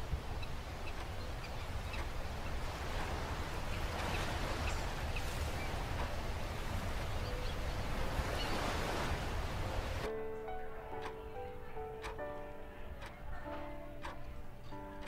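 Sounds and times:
surf: 0.0s - 10.3s
wind: 0.0s - 15.0s
music: 10.1s - 15.0s.

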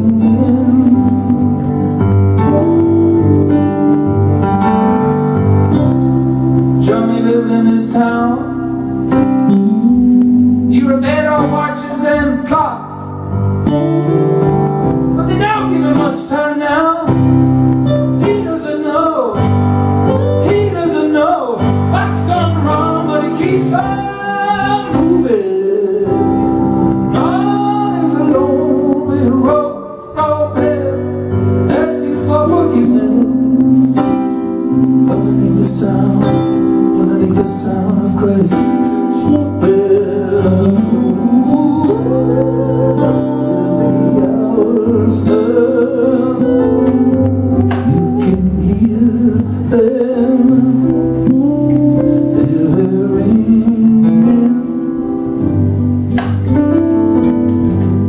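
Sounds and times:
man singing: 0.0s - 14.2s, 15.1s - 55.8s
electric guitar: 0.0s - 58.0s.

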